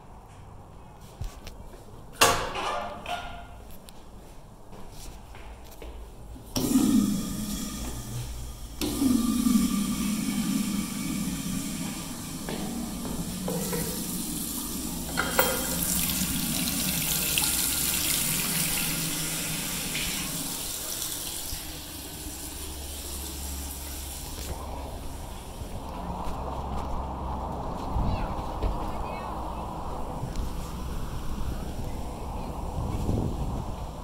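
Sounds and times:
toilet flush water rushing: 0:06.6 - 0:24.5.

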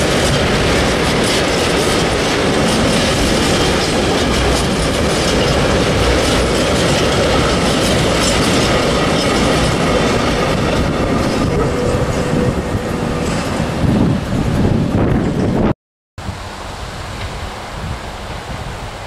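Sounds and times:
wheels clicking over rail joints: 0:00.0 - 0:13.7
freight train rolling past: 0:00.0 - 0:19.0.

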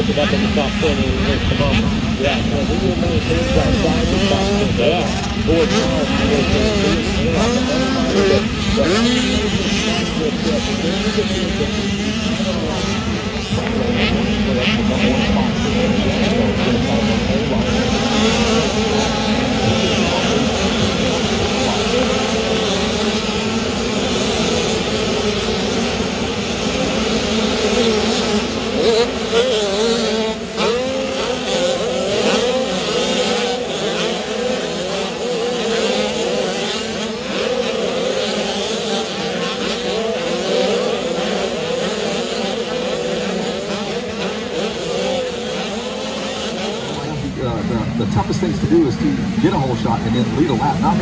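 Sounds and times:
motocross bikes revving: 0:00.0 - 0:51.0.

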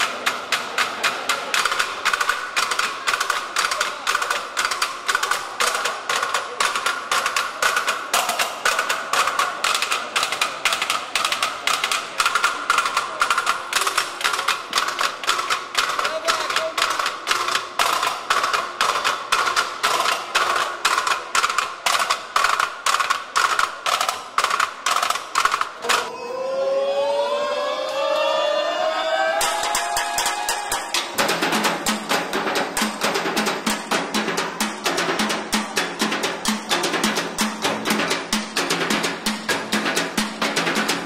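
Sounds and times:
drumsticks beating metal ladders: 0:00.0 - 0:26.1, 0:29.4 - 0:41.0
rising siren-like wail: 0:26.1 - 0:30.4.

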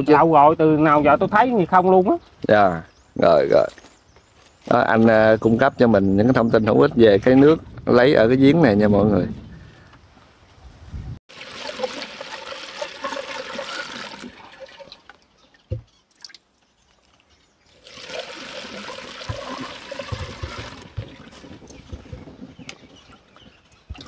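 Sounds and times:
water gushing into a can: 0:11.3 - 0:15.2, 0:17.7 - 0:21.8
knocks on water can: 0:19.2 - 0:21.2.

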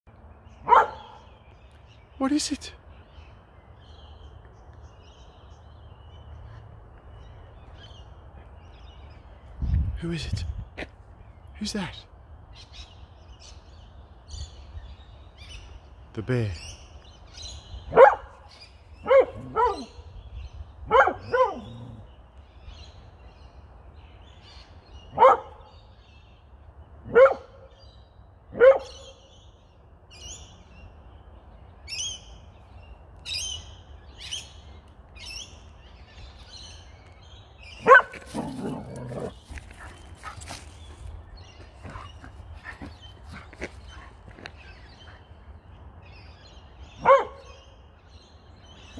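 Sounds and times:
dog barking: 0:00.6 - 0:01.2, 0:17.9 - 0:18.3, 0:19.0 - 0:20.0, 0:20.9 - 0:21.7, 0:25.1 - 0:25.6, 0:27.1 - 0:27.6, 0:28.5 - 0:29.0, 0:37.8 - 0:39.3, 0:47.0 - 0:47.6.

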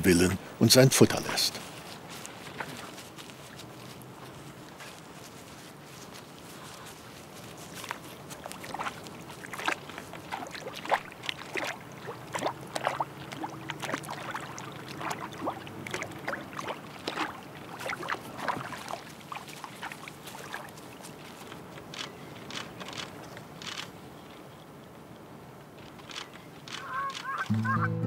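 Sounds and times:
water splashing with steps: 0:06.7 - 0:23.2.

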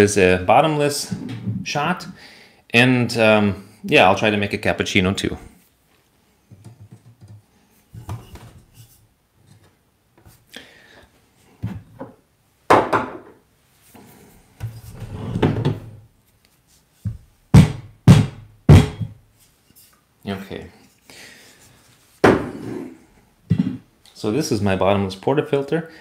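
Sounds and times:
loud knocks: 0:17.6 - 0:19.2.

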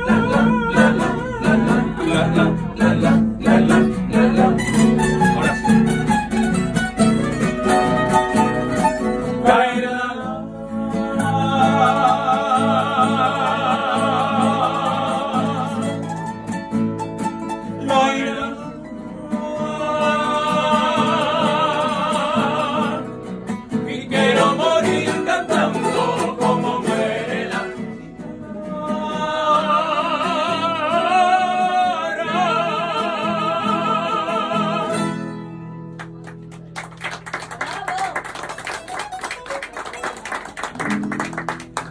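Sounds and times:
voices singing in harmony: 0:00.0 - 0:05.5, 0:09.0 - 0:16.2, 0:17.6 - 0:35.3
strummed guitars: 0:00.0 - 0:37.6, 0:38.4 - 0:41.9.

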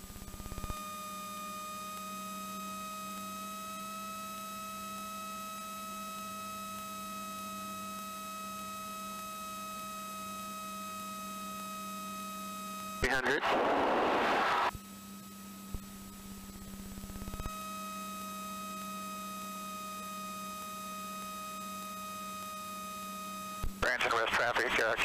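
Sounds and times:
electronic hum of held tones: 0:00.0 - 0:25.0
rapid electronic buzz: 0:13.0 - 0:14.7.

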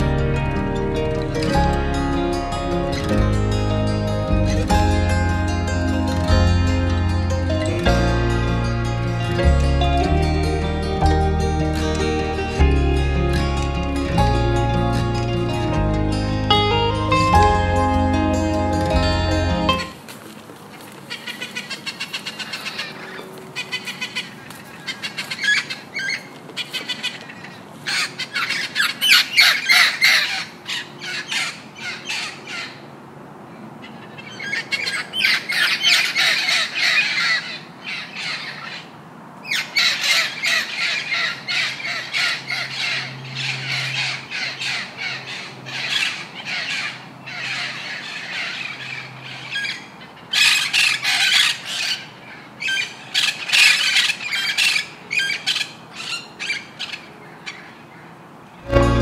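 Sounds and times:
macaws squawking: 0:20.7 - 0:32.8, 0:34.2 - 0:38.9.

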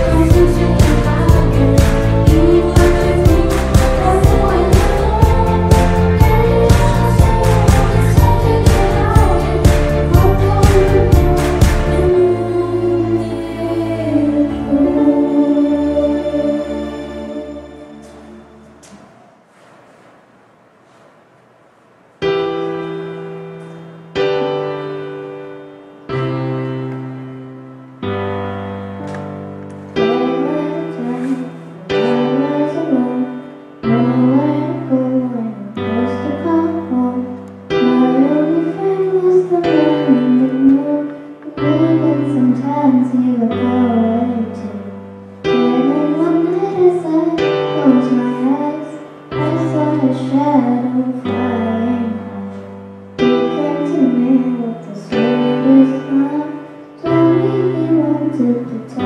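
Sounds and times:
girl singing: 0:00.0 - 0:18.2, 0:30.0 - 0:59.0
piano chords: 0:00.0 - 0:59.0.

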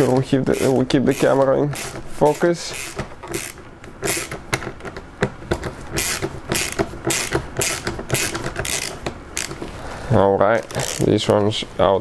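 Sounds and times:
ratchet driver clicking: 0:00.0 - 0:04.7, 0:06.0 - 0:09.6.

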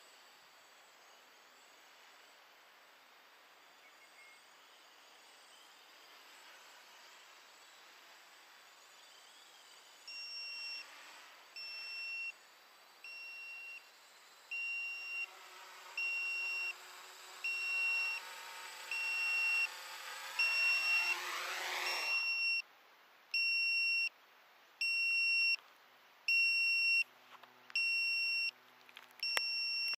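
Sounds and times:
quadcopter motors whining: 0:00.0 - 0:22.6, 0:29.2 - 0:29.9
two-tone electronic buzzer beeps: 0:10.1 - 0:10.9, 0:11.6 - 0:12.4, 0:13.0 - 0:13.9, 0:14.5 - 0:22.6, 0:23.4 - 0:24.1, 0:24.8 - 0:25.6, 0:26.3 - 0:27.0, 0:27.8 - 0:28.6, 0:29.2 - 0:29.9.

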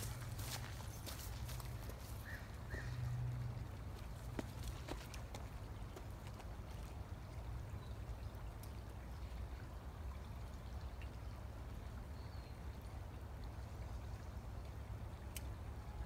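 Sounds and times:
faint creek water trickling: 0:00.0 - 0:16.0.

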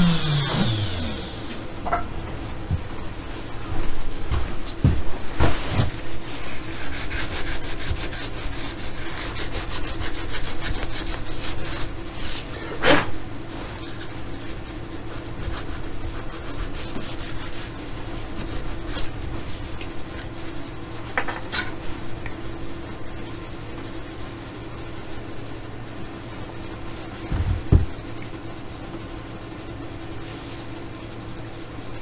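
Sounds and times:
sandpaper rubbing on wood: 0:06.4 - 0:12.5, 0:15.1 - 0:19.7.

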